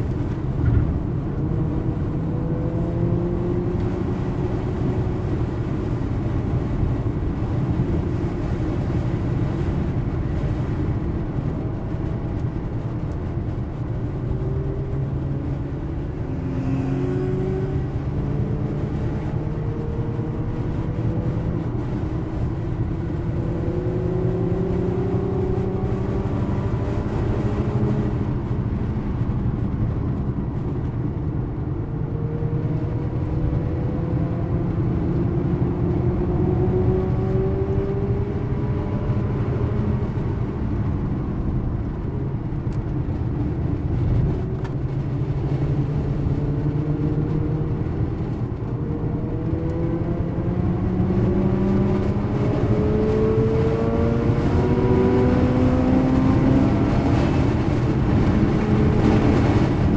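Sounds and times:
road and tyre noise: 0.0 - 59.9.

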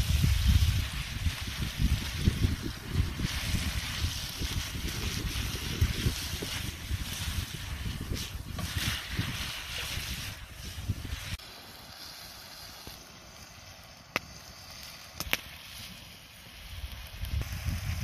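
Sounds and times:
wind buffeting microphone: 0.0 - 11.4, 16.7 - 18.0
outdoor hiss: 0.0 - 18.0.

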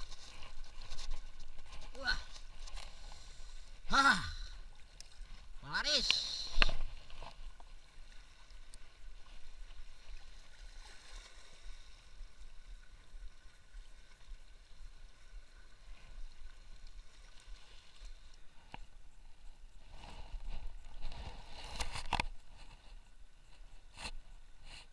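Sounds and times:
faint water lapping: 0.0 - 24.9
steady hiss: 2.8 - 4.7.

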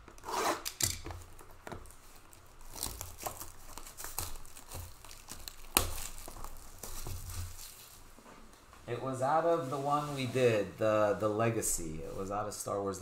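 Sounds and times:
plastic shrink-wrap tearing and crinkling: 0.2 - 8.1.

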